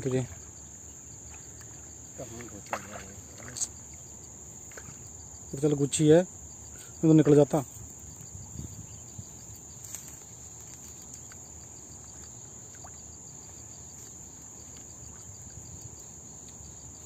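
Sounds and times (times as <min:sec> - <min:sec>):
insects chirring: 0:00.0 - 0:17.0
small ticks: 0:01.3 - 0:05.2, 0:09.2 - 0:17.0.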